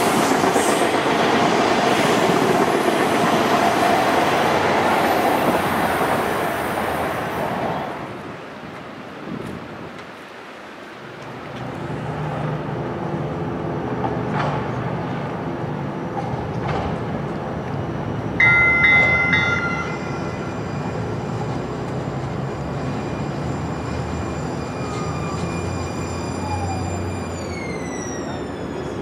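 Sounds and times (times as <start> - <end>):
tram rumbling and humming: 0.0 - 29.0
tram warning bell ringing: 18.4 - 27.1.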